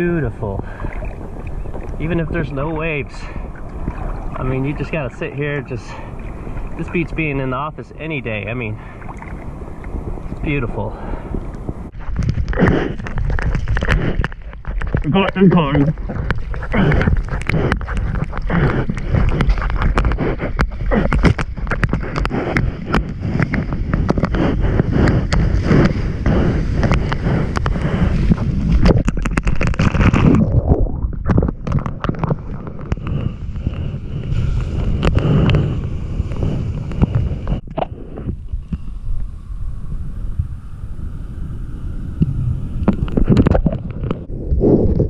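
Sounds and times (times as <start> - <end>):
seawater rushing and splashing: 0.0 - 12.1, 13.1 - 37.7
wind buffeting microphone: 0.0 - 45.0.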